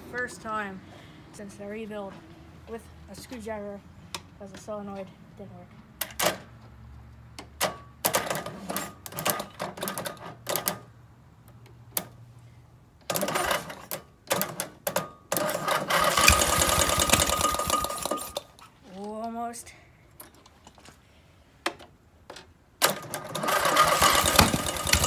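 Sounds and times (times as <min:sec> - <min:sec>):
engine cranking: 0:15.4 - 0:18.6, 0:22.8 - 0:25.0.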